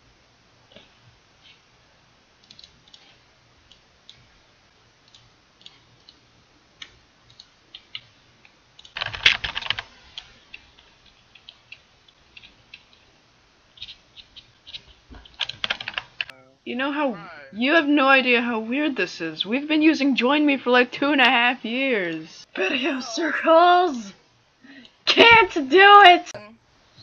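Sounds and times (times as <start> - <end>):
computer keyboard typing: 2.4 - 4.2, 5.0 - 6.2, 6.8 - 8.1, 8.8 - 13.1, 13.8 - 16.3.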